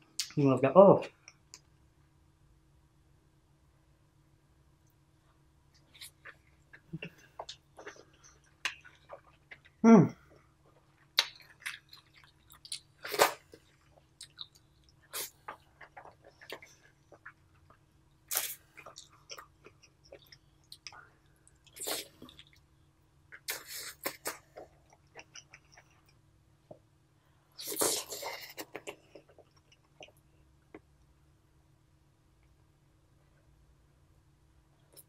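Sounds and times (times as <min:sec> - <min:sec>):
wet chewing and mouth sounds: 0:05.7 - 0:22.7, 0:23.3 - 0:26.8.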